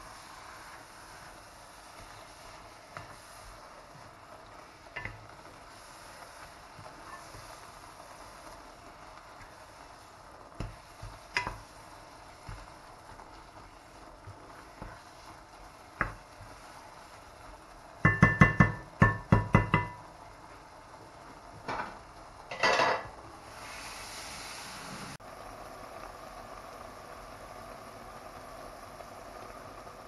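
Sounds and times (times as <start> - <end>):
wooden spoon stirring in a pot: 0.0 - 22.2
spoon tapping on a pot: 5.0 - 5.2, 10.6 - 11.7, 16.0 - 16.2, 18.0 - 20.0.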